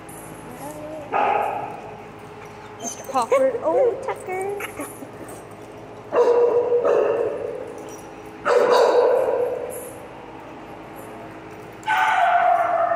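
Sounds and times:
dog barking with echo: 0:06.2 - 0:07.4, 0:08.5 - 0:09.5.

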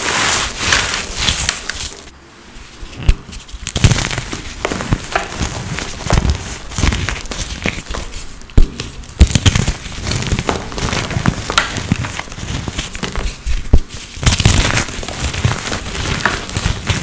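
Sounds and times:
powder blocks crushed crunching: 0:03.7 - 0:17.0.

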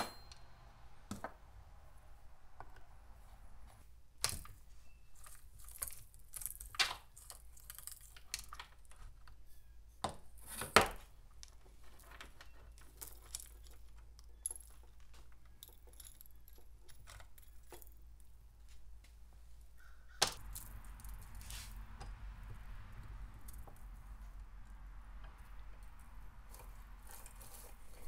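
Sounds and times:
saw chain links clinking: 0:12.0 - 0:18.0, 0:25.8 - 0:28.0.

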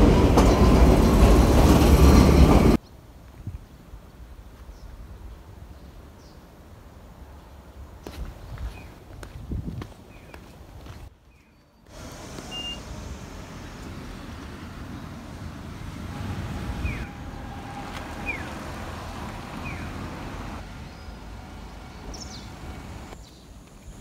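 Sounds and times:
road traffic: 0:00.0 - 0:02.8, 0:10.0 - 0:24.0
wind on microphone: 0:08.2 - 0:10.0.

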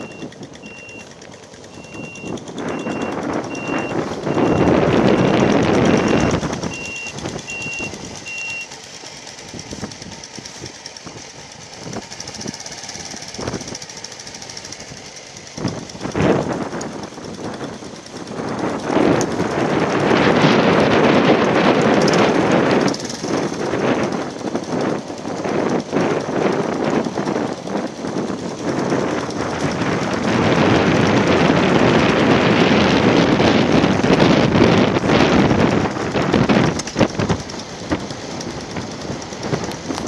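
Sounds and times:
vehicle reversing beeper: 0:00.0 - 0:08.8.

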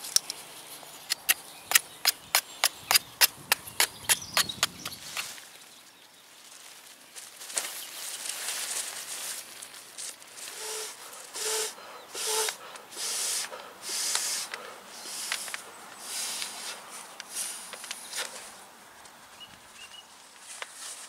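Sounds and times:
breathy hiss of air blowing: 0:10.4 - 0:18.6.

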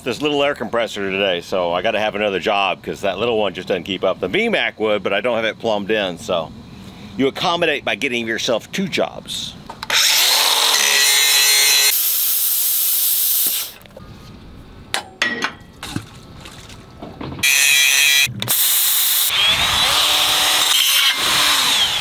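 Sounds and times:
cordless drill running: 0:09.9 - 0:13.8, 0:17.4 - 0:22.0
plasma cutter hissing: 0:11.9 - 0:13.8, 0:18.5 - 0:19.3.

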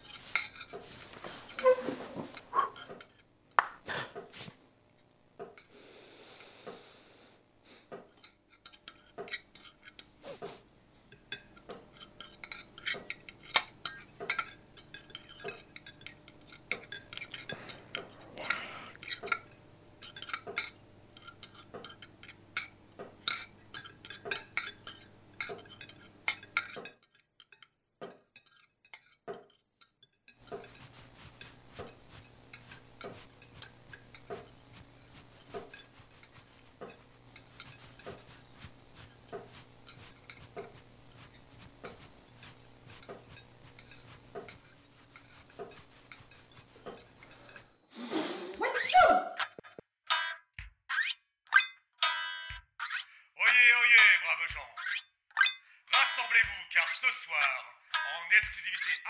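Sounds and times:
cutlery clinking on plates: 0:08.0 - 0:47.7.

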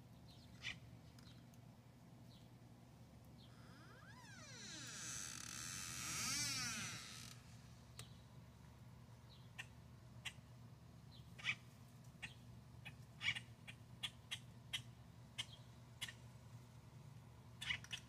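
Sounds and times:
bird chicks calling: 0:11.2 - 0:11.6, 0:12.2 - 0:16.2, 0:17.6 - 0:18.0.

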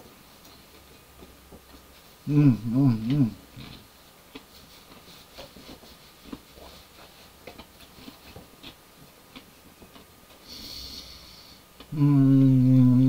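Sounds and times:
person chewing crunchy food: 0:03.0 - 0:10.6.

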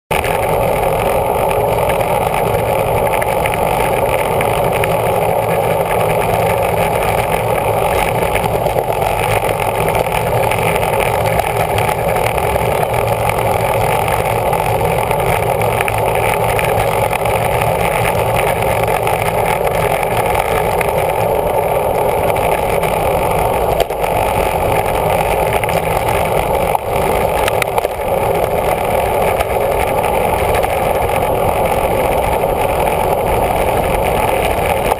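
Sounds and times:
wind and road rush: 0:00.1 - 0:34.9.

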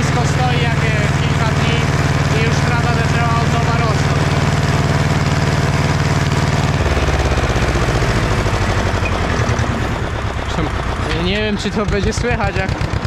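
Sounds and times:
tractor diesel engine lugging: 0:00.0 - 0:13.0.

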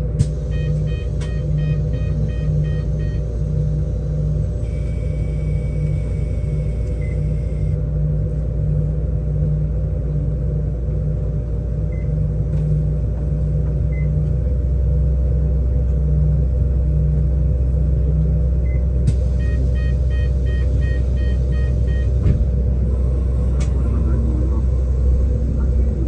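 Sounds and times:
electric bus humming: 0:00.0 - 0:26.0
road rumble: 0:00.0 - 0:26.0.

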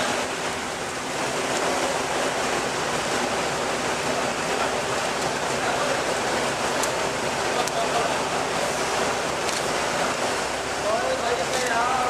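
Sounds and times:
bus diesel engine running: 0:00.0 - 0:12.0.

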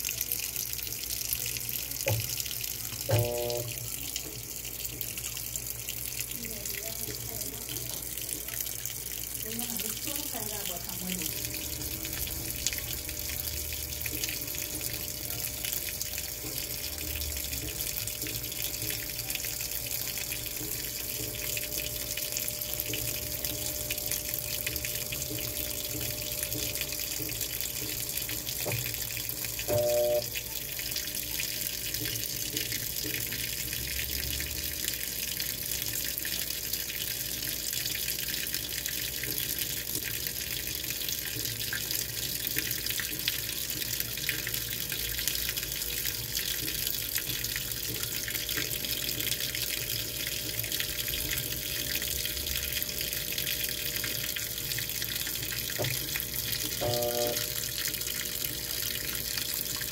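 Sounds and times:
water pouring into washing machine: 0:00.0 - 0:59.9
short beep: 0:03.1 - 0:03.8, 0:29.7 - 0:30.3, 0:56.8 - 0:57.5.

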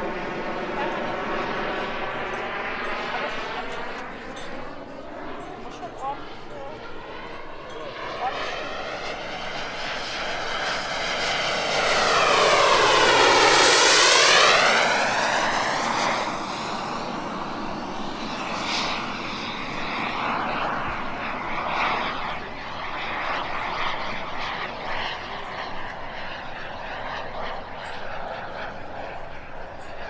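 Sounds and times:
model jet turbine flying past: 0:00.0 - 0:30.0.

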